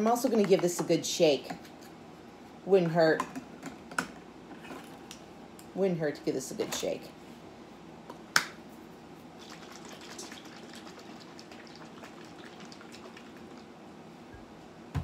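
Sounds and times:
liquid pouring trickle: 9.4 - 13.7.

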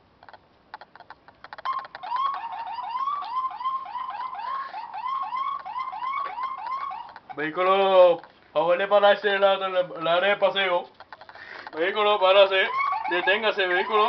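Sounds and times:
sharp clicks: 0.0 - 3.4, 10.8 - 11.8
police siren yelping: 1.4 - 8.2, 11.2 - 14.0.

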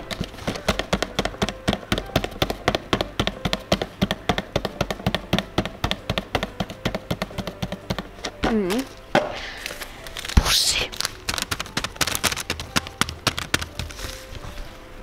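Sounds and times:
fingers tapping on cardboard: 0.0 - 8.6, 11.1 - 14.2.

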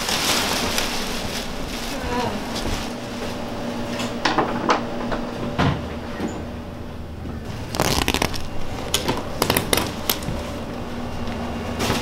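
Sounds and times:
carpet tearing off tack strip: 7.7 - 10.2.

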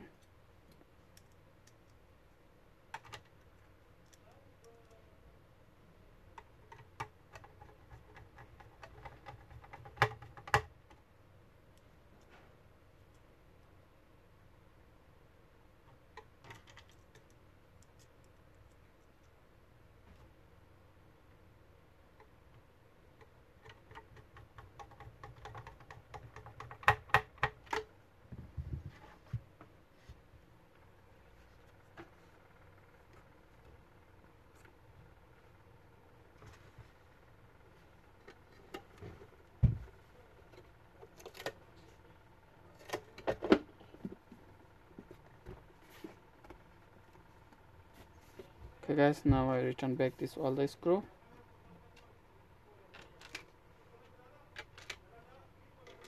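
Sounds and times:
plastic parts clicking and knocking: 2.9 - 5.0, 6.3 - 11.1, 15.8 - 18.4, 22.2 - 29.2, 38.0 - 41.6, 42.7 - 46.6, 52.9 - 53.6, 54.5 - 55.1.

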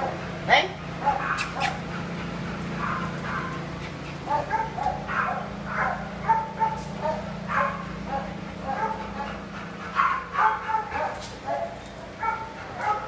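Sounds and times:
dog barking and yipping: 1.0 - 1.8, 2.7 - 3.6, 4.2 - 9.3, 9.9 - 13.0.

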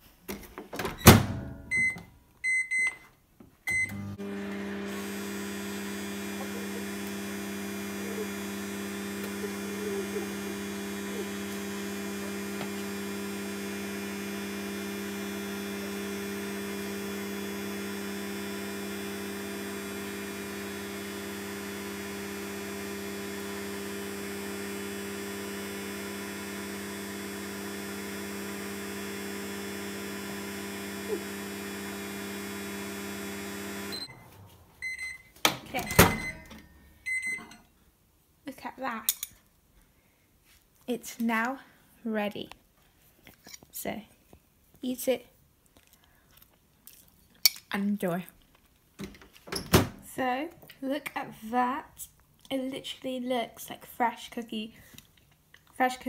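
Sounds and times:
microwave door shutting: 0.8 - 1.8, 35.5 - 36.6
keypad beeps: 1.7 - 3.0
microwave oven humming: 3.7 - 37.7.

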